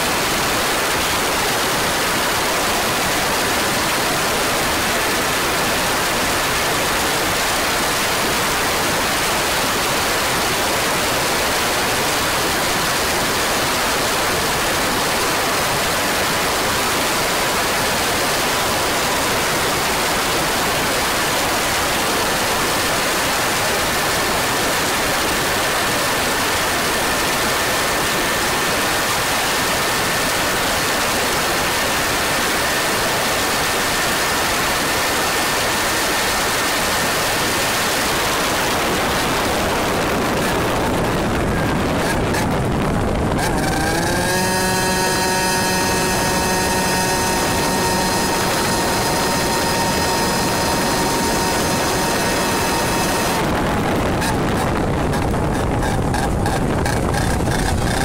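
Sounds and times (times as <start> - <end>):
faint high whine: 0.0 - 58.0
wind rushing over camera: 37.5 - 44.4, 52.4 - 58.0.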